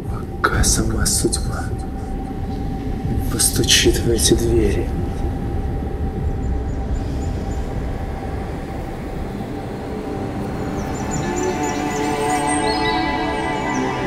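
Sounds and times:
low rumbling drone: 0:00.0 - 0:14.0
sustained musical notes: 0:00.0 - 0:14.0.

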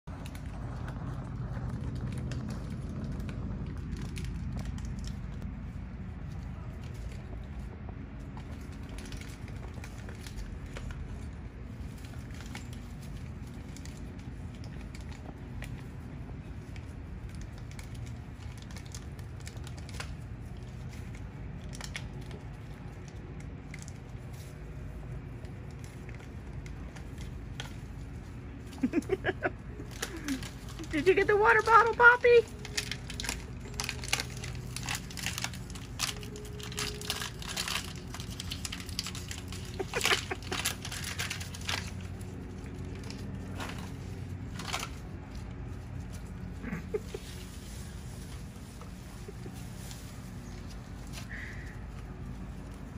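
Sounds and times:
steady low rumble: 0:00.0 - 0:52.9
dry leaves crackling underfoot: 0:00.1 - 0:52.9
puppies play-fighting: 0:32.5 - 0:52.9.

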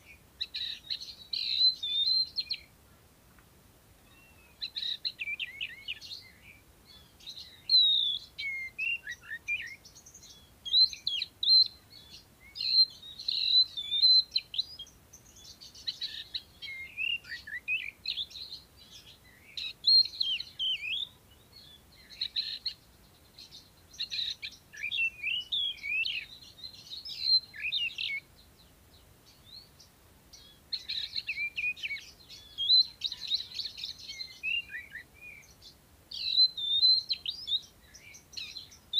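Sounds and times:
bird singing whistles and chirps: 0:00.0 - 0:02.7, 0:04.0 - 0:38.9.

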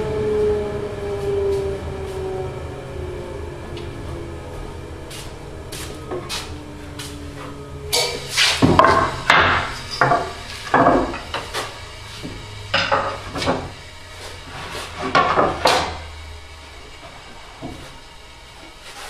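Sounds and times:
low hum: 0:00.0 - 0:19.0
wooden boards knocking: 0:08.6 - 0:11.6.

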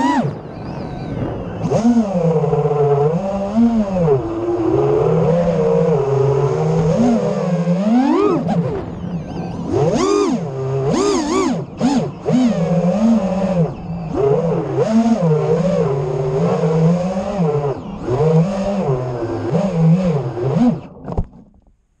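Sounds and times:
drone motors whining: 0:00.0 - 0:21.6.

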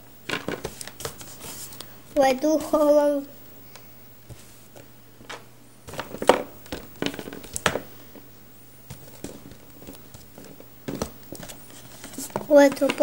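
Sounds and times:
plastic toys clicking and knocking: 0:05.3 - 0:07.9, 0:12.2 - 0:13.0.

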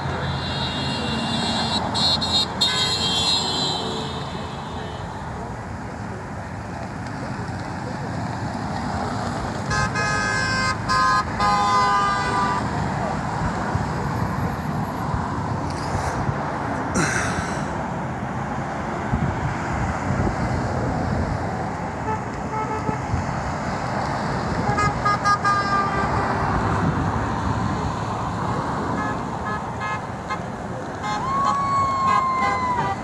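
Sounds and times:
car horns honking: 0:00.0 - 0:05.4, 0:09.6 - 0:12.8, 0:22.0 - 0:23.0, 0:24.6 - 0:26.6, 0:28.9 - 0:33.0
traffic road noise: 0:00.0 - 0:33.0.

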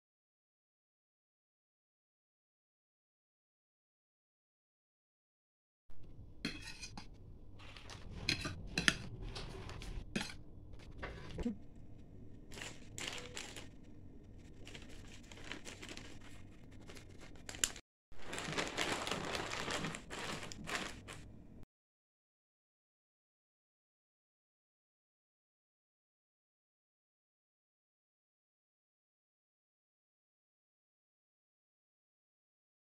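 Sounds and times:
plastic bag rustling and crinkling: 0:12.4 - 0:21.4.

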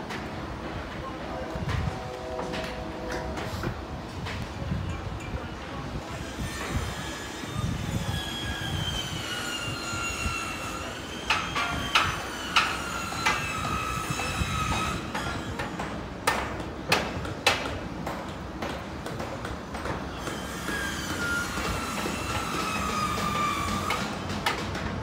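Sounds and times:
freight train rumbling: 0:00.0 - 0:25.0
train wheels squealing: 0:05.4 - 0:15.9, 0:20.1 - 0:24.3
wheels clacking on rail joints: 0:09.1 - 0:25.0.

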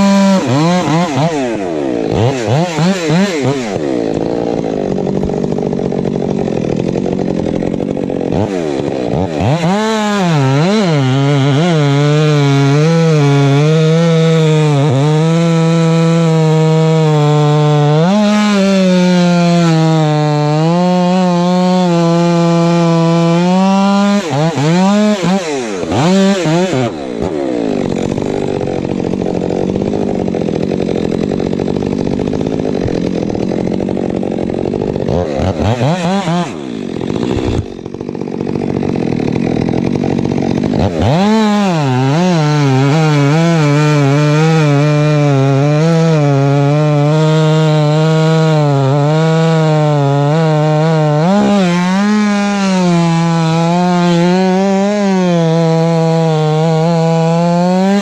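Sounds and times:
chainsaw cutting log: 0:00.0 - 0:58.0
chainsaw idling and revving: 0:00.0 - 0:58.0.

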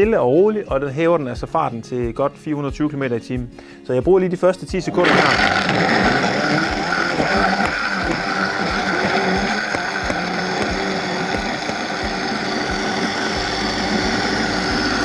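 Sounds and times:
blender motor whirring: 0:04.9 - 0:15.0.

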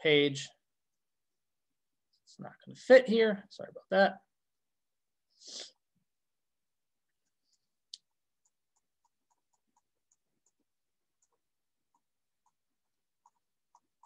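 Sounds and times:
stylus tapping tablet screen: 0:07.2 - 0:14.0.

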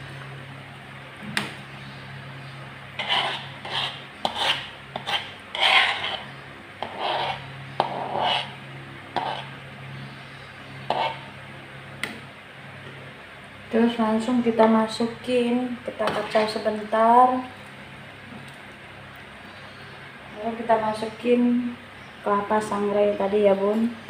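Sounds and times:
low steady hum: 0:00.0 - 0:24.0
metal spatula scraping a wok: 0:03.0 - 0:08.6.

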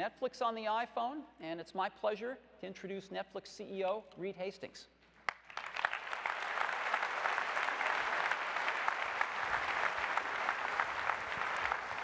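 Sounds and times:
large audience applauding: 0:05.3 - 0:12.0.

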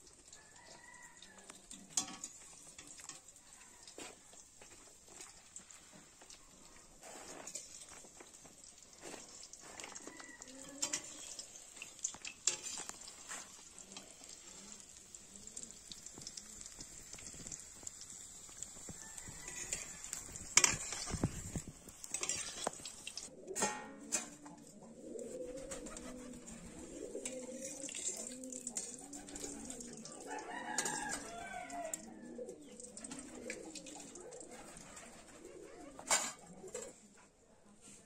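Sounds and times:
food sizzling in oil: 0:00.0 - 0:23.3, 0:25.9 - 0:34.5
ladle scraping a pan: 0:07.0 - 0:07.9, 0:12.3 - 0:13.6, 0:19.3 - 0:24.4.

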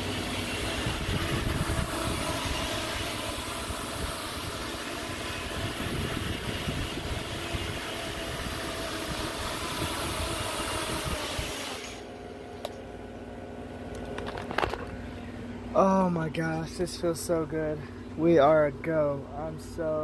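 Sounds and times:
drone motors whining: 0:00.0 - 0:13.2.

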